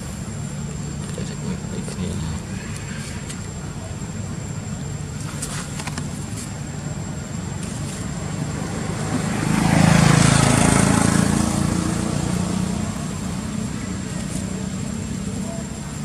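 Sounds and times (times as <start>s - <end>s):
low rumble of traffic: 0.0s - 16.0s
vehicle passing: 8.1s - 15.7s.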